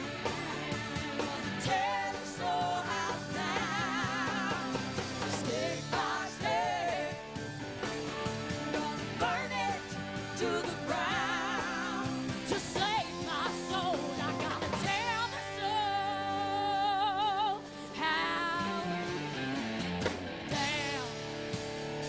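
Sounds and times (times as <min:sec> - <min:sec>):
rock band playing live: 0:00.0 - 0:22.0
woman singing with vibrato: 0:01.1 - 0:04.8, 0:08.7 - 0:19.1.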